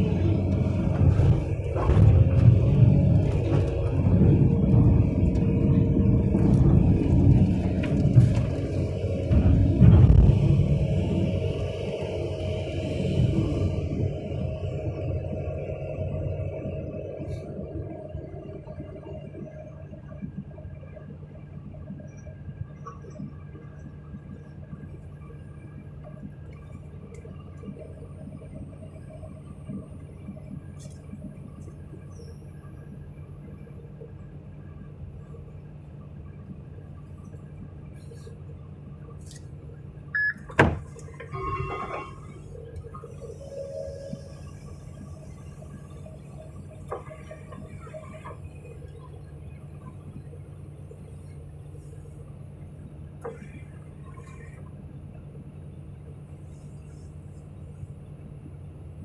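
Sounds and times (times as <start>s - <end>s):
diesel engine idling: 0.0s - 18.8s
excavator engine and hydraulics: 0.0s - 59.0s
brief squeal: 41.3s - 42.4s
short high tone: 41.3s - 42.4s, 43.3s - 44.5s.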